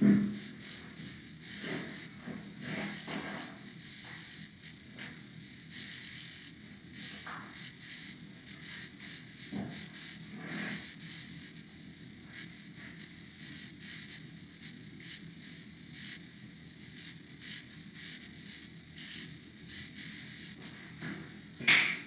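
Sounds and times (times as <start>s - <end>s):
background hiss: 0.0s - 22.0s
faint crackles: 0.5s - 4.2s.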